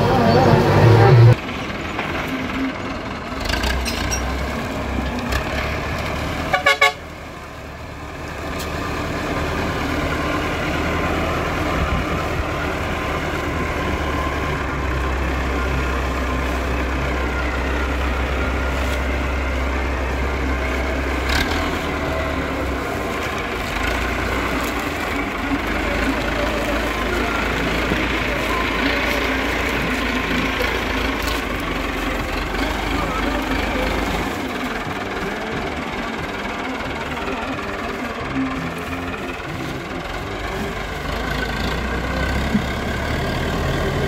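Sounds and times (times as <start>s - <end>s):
tractor diesel engine running: 0.0s - 44.0s.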